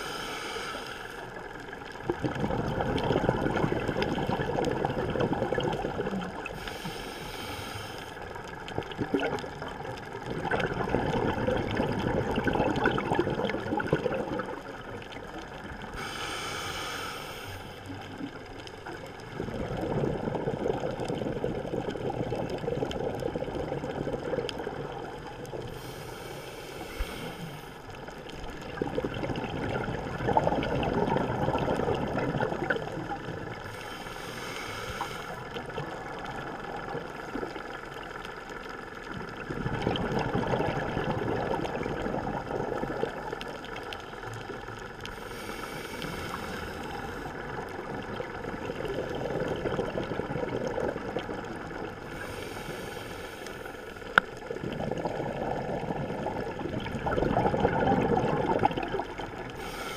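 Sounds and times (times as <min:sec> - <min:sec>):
regulator hissing inhalations: 0:00.0 - 0:01.4, 0:06.6 - 0:08.2, 0:15.9 - 0:17.8, 0:25.7 - 0:27.8, 0:33.6 - 0:35.4, 0:45.1 - 0:47.3, 0:52.0 - 0:54.0, 0:59.6 - 0:59.9
bubbling exhalation: 0:02.0 - 0:06.5, 0:10.3 - 0:14.8, 0:28.6 - 0:33.3, 0:48.1 - 0:51.8, 0:54.5 - 0:59.8.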